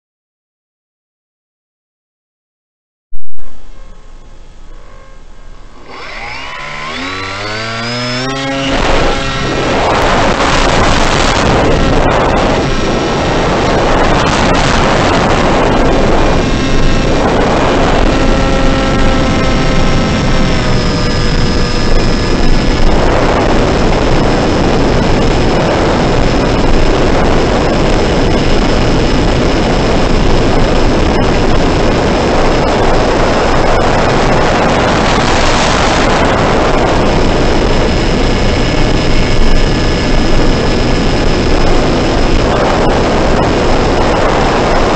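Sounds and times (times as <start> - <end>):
wind rushing: 3.4 - 44.9
model airplane motor and propeller: 3.8 - 44.9.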